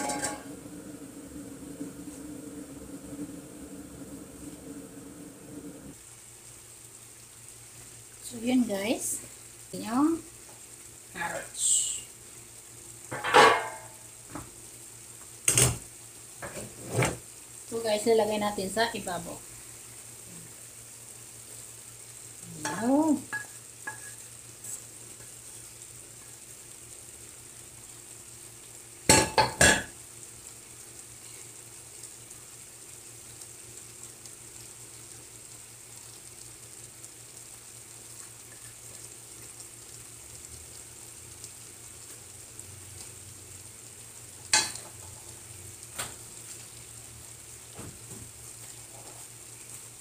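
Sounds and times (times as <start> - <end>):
cookware clanking: 0.0 - 0.6, 13.1 - 13.9, 22.7 - 24.2
pot simmering with faint hiss: 0.0 - 50.0.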